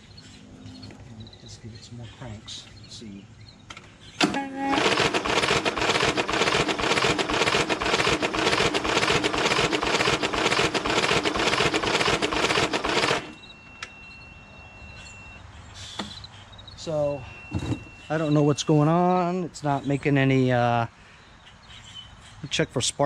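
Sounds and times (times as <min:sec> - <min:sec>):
electric starter cranking engine: 0:04.2 - 0:13.4.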